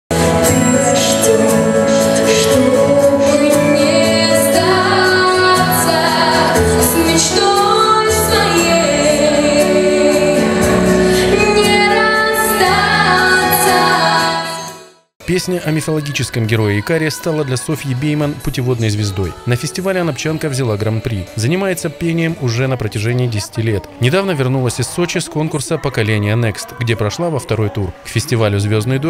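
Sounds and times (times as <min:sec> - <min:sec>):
girl singing into microphone: 0:00.4 - 0:14.8.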